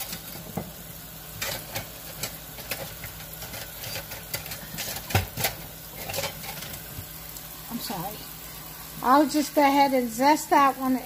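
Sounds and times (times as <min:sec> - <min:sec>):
things handled on countertop: 0:01.4 - 0:07.1.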